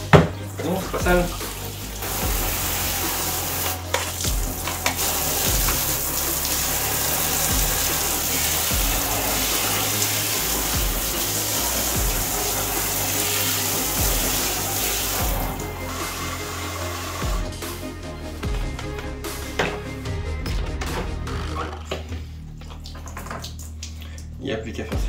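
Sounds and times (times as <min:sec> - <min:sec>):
shower water spraying: 0:00.0 - 0:18.0.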